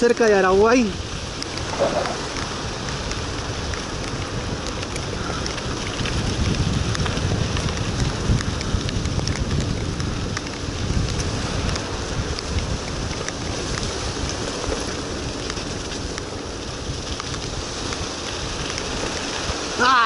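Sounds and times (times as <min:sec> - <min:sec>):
sharp ticks of raindrops: 0:00.0 - 0:20.0
steady rain: 0:00.0 - 0:20.0
wind rushing over microphone: 0:00.0 - 0:20.0.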